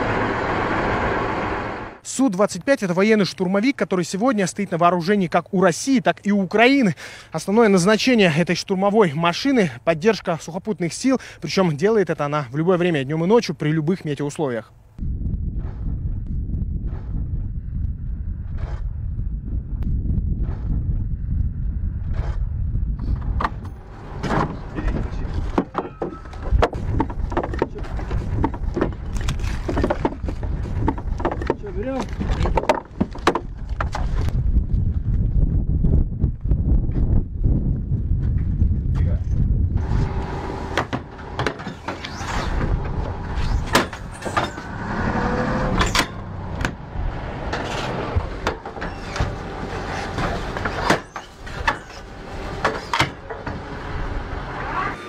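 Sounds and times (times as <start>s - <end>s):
low rumble: 15.0s - 25.6s, 26.2s - 50.5s
wood and metal knocks and clatter: 23.2s - 34.3s, 47.4s - 53.8s.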